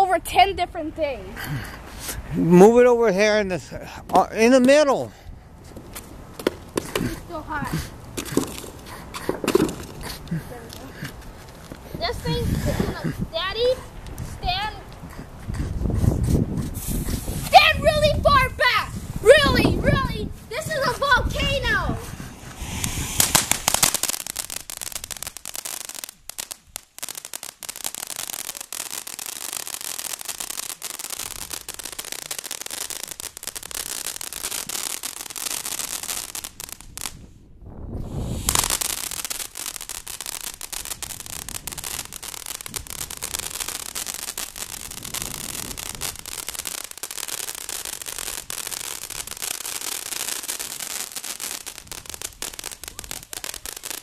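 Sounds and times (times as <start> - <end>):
firework fountain crackling hiss: 6.7 - 14.8, 19.1 - 37.2, 38.0 - 54.0.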